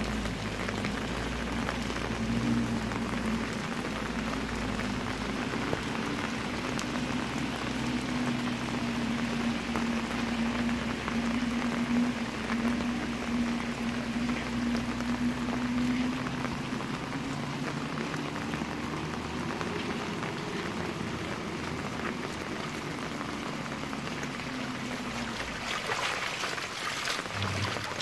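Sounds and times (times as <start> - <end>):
rain on flooded street: 0.0 - 28.0
low steady hum: 6.7 - 28.0.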